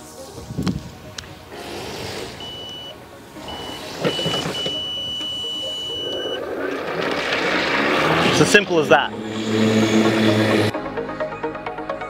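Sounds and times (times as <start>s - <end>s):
electric mower motors whining: 1.5s - 10.7s.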